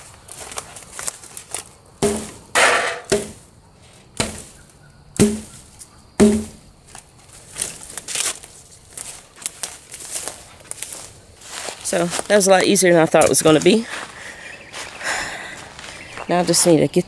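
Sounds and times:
wood crackle: 0.0s - 2.3s, 3.8s - 15.2s
sledgehammer thunking on wood: 2.0s - 3.4s, 4.2s - 4.6s, 5.2s - 5.6s, 6.2s - 6.6s.

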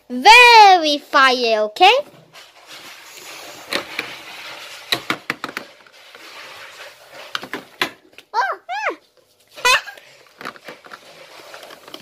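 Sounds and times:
plastic toys clattering: 2.5s - 8.1s, 9.6s - 12.0s.

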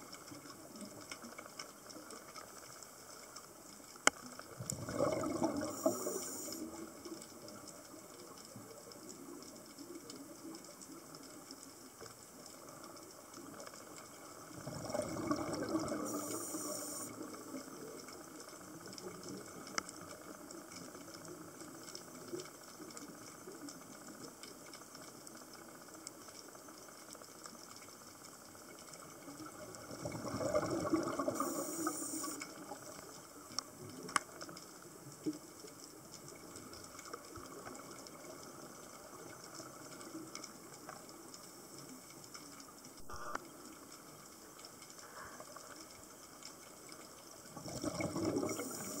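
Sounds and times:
steady underwater hiss: 0.0s - 49.0s
underwater regulator bubbles: 4.5s - 7.0s, 14.4s - 17.5s, 29.7s - 32.6s, 43.0s - 43.4s, 47.5s - 49.0s.

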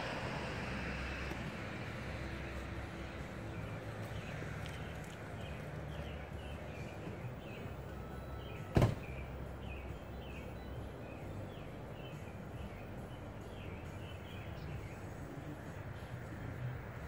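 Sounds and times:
small birds chirping: 2.2s - 17.0s.

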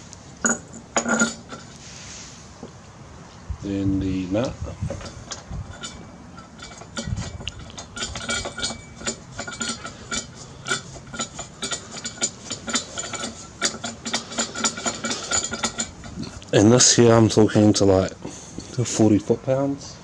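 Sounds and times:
metallic clicking and rattling: 4.4s - 17.7s.

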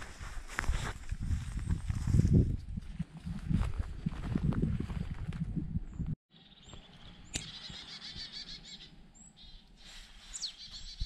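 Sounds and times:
footsteps on forest floor: 0.0s - 5.3s
songbirds chirping: 5.9s - 11.0s
bird warbling song: 6.3s - 11.0s.

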